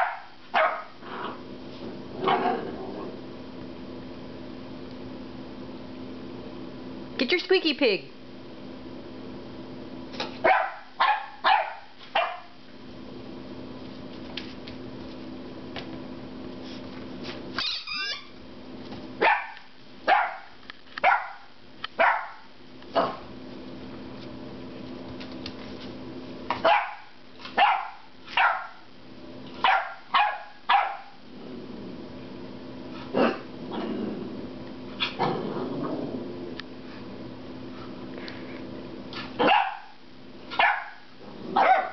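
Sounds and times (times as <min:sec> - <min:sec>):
puppy barking: 0:00.0 - 0:01.0, 0:10.4 - 0:12.6, 0:19.2 - 0:23.2, 0:26.5 - 0:28.9, 0:29.6 - 0:31.2, 0:39.4 - 0:41.9.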